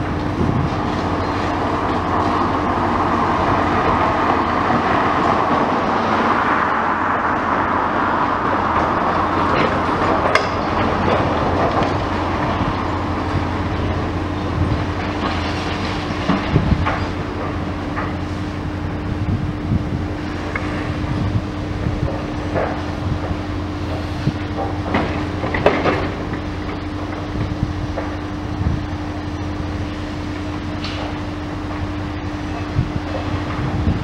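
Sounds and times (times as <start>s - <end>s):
excavator engine rumble: 0.0s - 34.0s
grinding and scraping of demolition: 0.0s - 34.0s.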